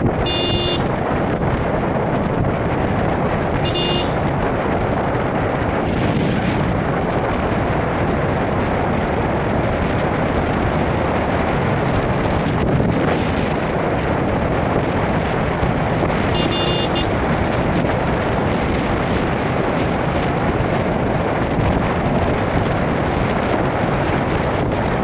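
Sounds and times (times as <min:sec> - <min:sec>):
wind and road noise: 0:00.0 - 0:25.0
short horn beep: 0:00.2 - 0:00.9, 0:03.6 - 0:04.2, 0:16.4 - 0:17.1.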